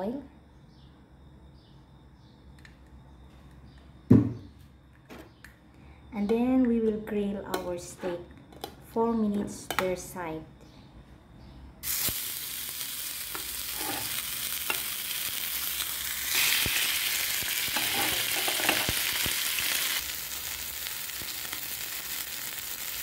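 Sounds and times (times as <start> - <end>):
steaks sizzling in oil: 11.8 - 23.0.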